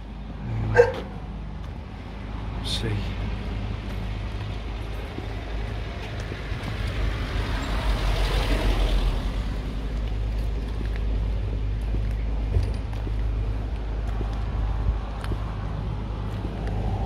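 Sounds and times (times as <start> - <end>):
vehicle driving past: 6.5 - 10.0, 14.4 - 17.0.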